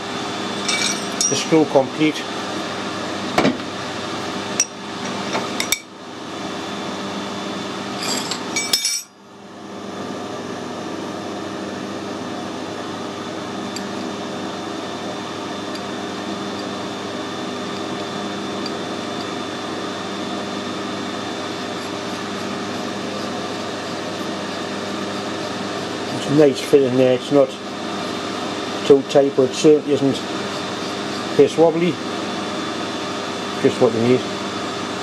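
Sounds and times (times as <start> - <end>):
steady workshop hum: 0.0 - 35.0
metal clinks and knocks: 0.6 - 1.4, 8.0 - 9.1.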